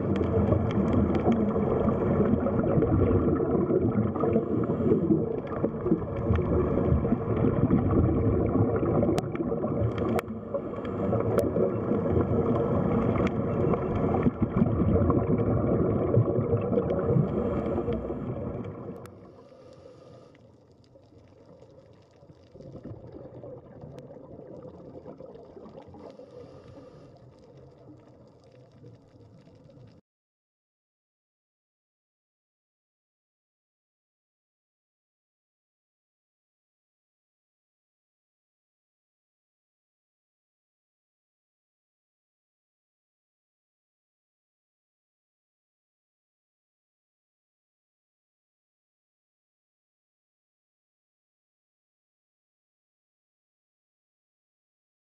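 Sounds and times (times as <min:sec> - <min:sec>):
underwater rumble: 0:00.0 - 0:30.0
faint hiss: 0:19.2 - 0:20.6.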